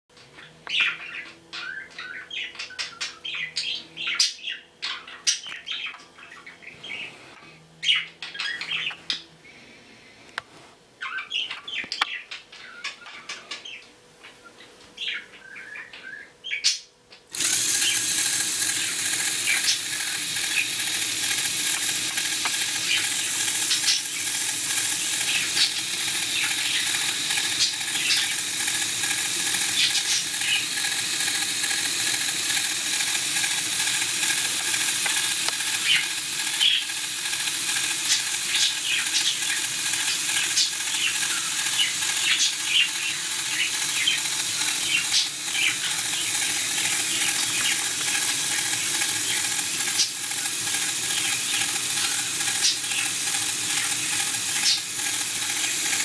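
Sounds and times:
electric motor whir and gear rattle: 17.3 - 56.0.

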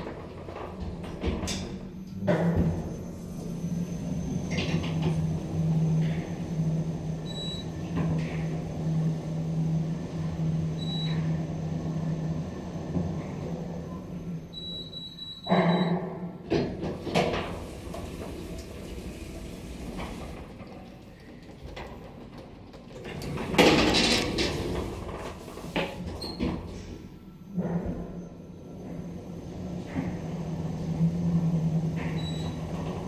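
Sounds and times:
lift doors sliding open: 0.0 - 33.0
lift humming: 1.7 - 15.0, 16.9 - 25.8
lift beeps: 7.2 - 7.8, 10.8 - 11.3, 14.5 - 16.0, 32.2 - 32.6.

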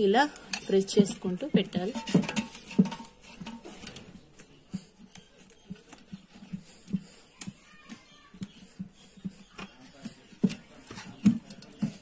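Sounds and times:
hand patting dough in a pan: 0.0 - 12.0.

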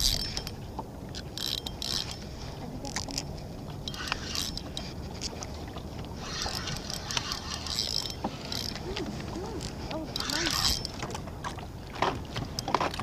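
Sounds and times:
spinning reel cranking: 0.0 - 0.6, 1.4 - 2.2, 3.8 - 4.8, 6.2 - 8.8, 9.6 - 11.0
reel clicks: 0.0 - 13.0.

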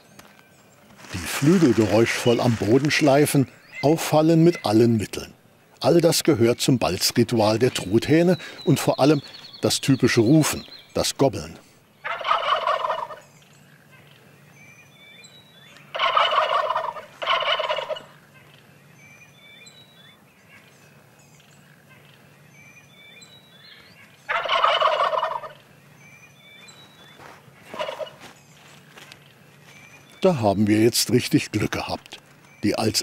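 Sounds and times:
turkeys gobbling: 1.0 - 4.8, 12.0 - 13.3, 15.9 - 18.6, 24.3 - 25.7, 27.2 - 28.3.

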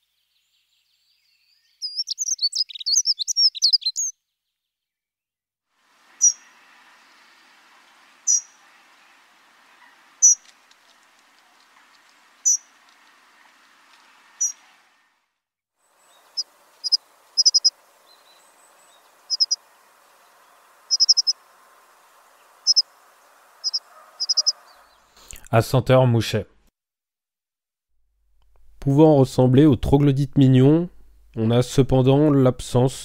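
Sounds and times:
bird calling high notes: 6.1 - 10.5, 16.1 - 25.0
faint background hiss: 15.8 - 25.3.

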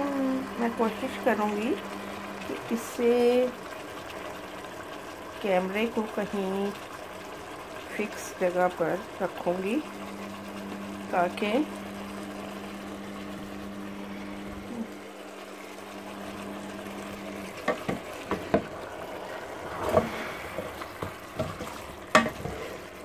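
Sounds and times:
faint sizzle: 0.0 - 23.0
wooden spoon knocking steel pot: 21.0 - 22.5.

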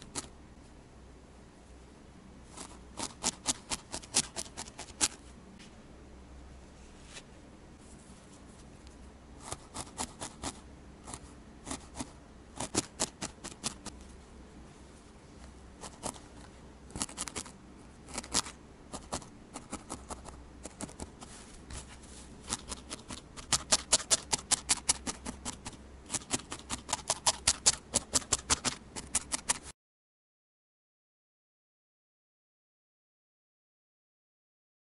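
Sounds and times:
felting needle stabbing: 2.6 - 5.2, 9.4 - 14.0, 17.0 - 17.5, 18.1 - 21.8, 22.4 - 29.7.

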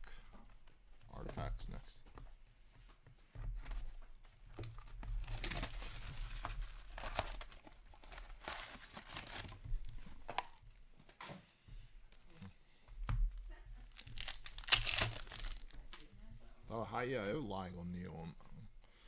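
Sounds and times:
plastic shrink wrap crinkling: 4.6 - 10.6, 13.8 - 16.1.

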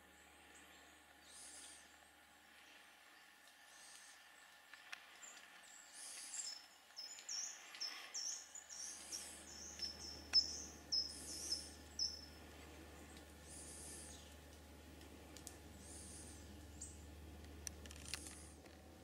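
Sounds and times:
faint low hum: 0.0 - 19.0
thin high bird call: 6.0 - 12.4
songbird singing high notes: 7.0 - 12.4.

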